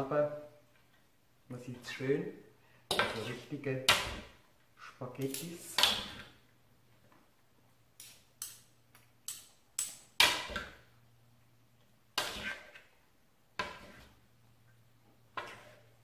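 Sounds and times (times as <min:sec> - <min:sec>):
faint steady hum: 0:00.0 - 0:12.2.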